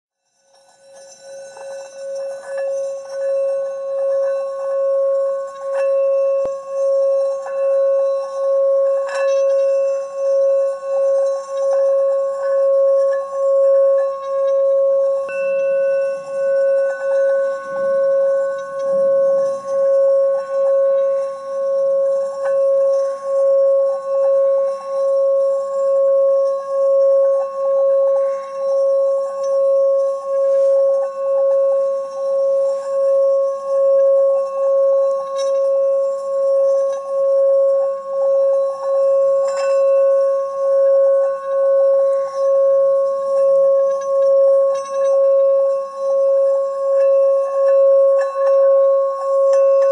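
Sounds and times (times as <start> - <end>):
singing bowl ringing tone: 0.2 - 49.9.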